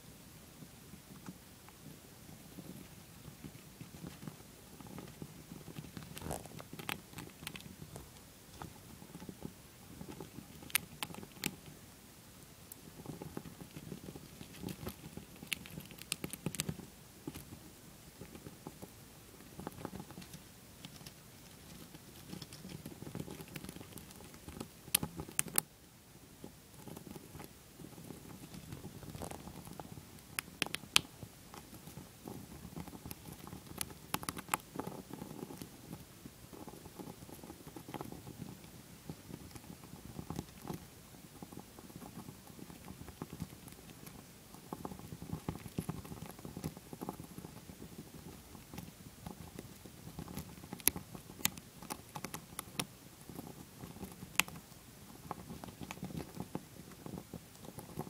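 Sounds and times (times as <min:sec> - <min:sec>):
hamster crunching a peanut: 0:01.0 - 0:11.8, 0:12.6 - 0:25.7, 0:26.3 - 0:58.0.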